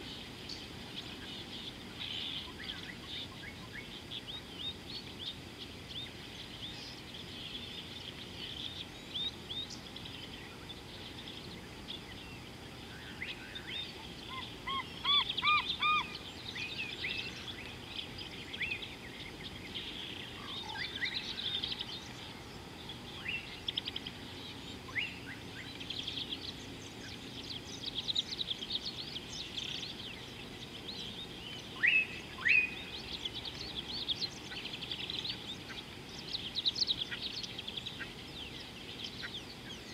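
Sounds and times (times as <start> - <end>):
background noise: 0.0 - 39.9
birds chirping and calling: 0.0 - 39.9
clear whistled bird notes: 31.5 - 33.3.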